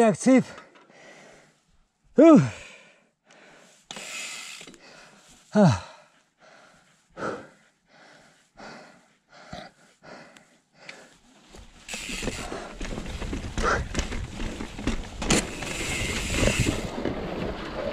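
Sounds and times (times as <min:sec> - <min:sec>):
person breathing hard: 0:00.9 - 0:01.7, 0:02.4 - 0:11.2
bike riding over rocks: 0:11.6 - 0:17.9.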